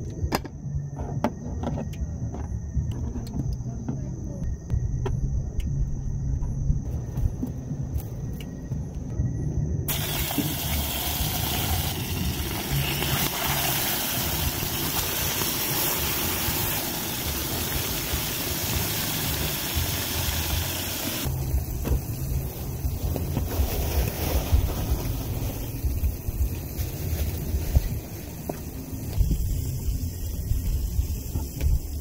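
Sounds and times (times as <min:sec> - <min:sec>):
fish sizzling in hot oil: 0:09.9 - 0:26.3.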